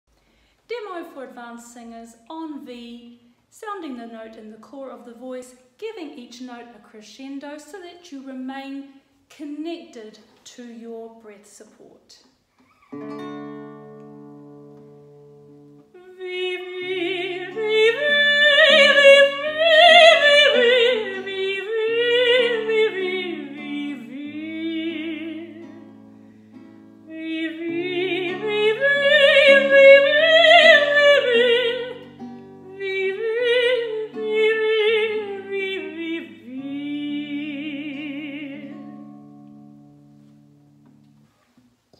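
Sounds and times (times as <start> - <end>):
guitar chords: 12.8 - 41.9
woman singing with vibrato: 15.9 - 25.9, 27.1 - 39.1.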